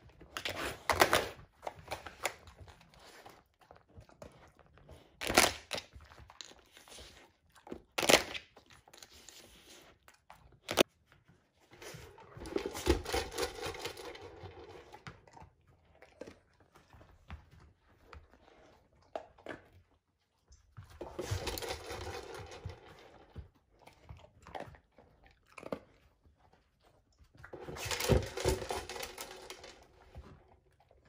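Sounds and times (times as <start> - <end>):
scraping and rustling: 21.0 - 23.4.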